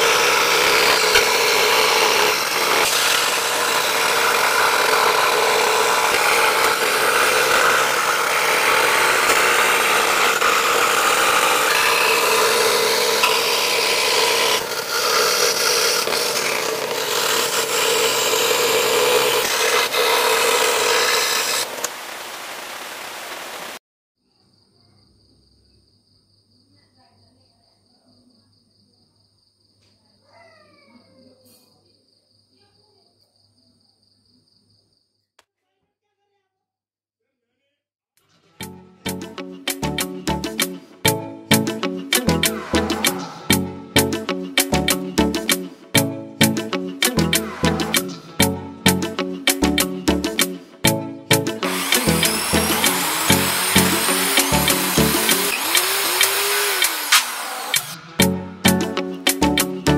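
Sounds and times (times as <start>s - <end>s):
scroll saw cutting plywood: 0.0s - 22.8s, 42.1s - 43.6s, 47.0s - 48.4s, 51.6s - 58.3s.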